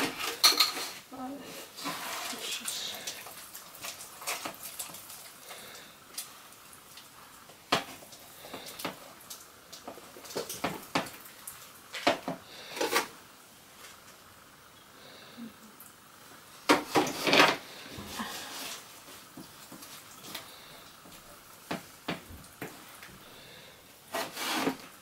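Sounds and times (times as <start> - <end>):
utensil scraping bowl: 0.0 - 3.1, 24.1 - 24.9.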